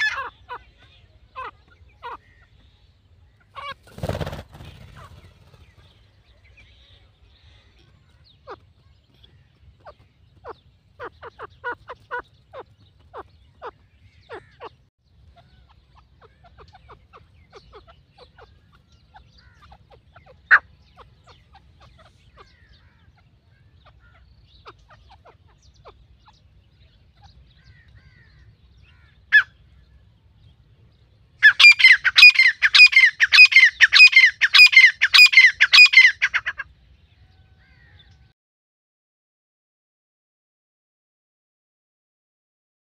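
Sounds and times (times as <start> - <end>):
francolin calling: 0.0 - 2.8, 31.4 - 36.6.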